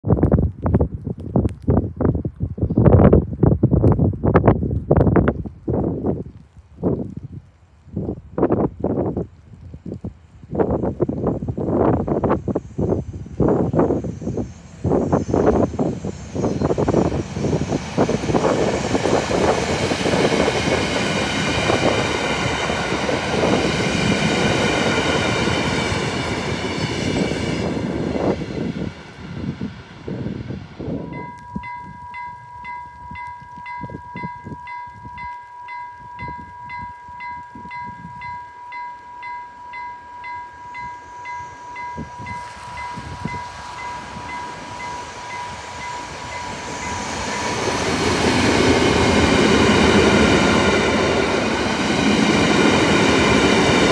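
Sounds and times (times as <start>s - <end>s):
locomotive and wagon rumbling past: 13.6s - 53.9s
level crossing warning bell: 31.0s - 48.2s.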